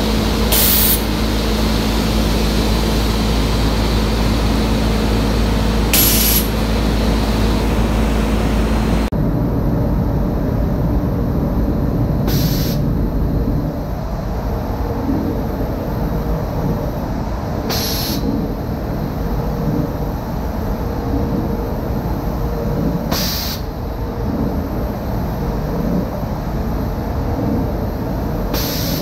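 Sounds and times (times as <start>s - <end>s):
rushing air from spray gun: 0.0s - 9.1s, 12.3s - 12.9s, 17.7s - 18.4s, 23.1s - 23.7s, 28.5s - 29.0s
compressed air hisses: 0.4s - 2.9s, 5.9s - 6.7s, 12.3s - 12.8s, 17.7s - 18.3s, 23.1s - 23.7s, 28.6s - 29.0s.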